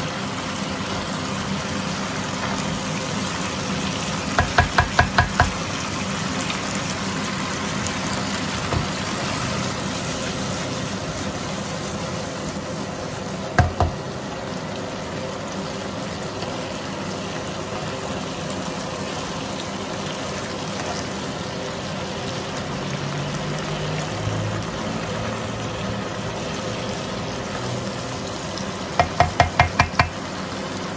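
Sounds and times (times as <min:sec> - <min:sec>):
stir-fry sizzling in wok: 0:00.0 - 0:30.9
spatula knocking on pan: 0:04.3 - 0:05.6, 0:13.6 - 0:14.0, 0:29.0 - 0:30.2.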